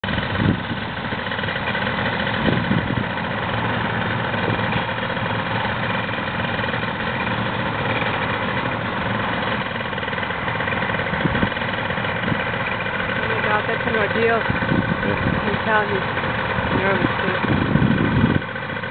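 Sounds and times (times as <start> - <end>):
paramotor engine and propeller: 0.0 - 18.9.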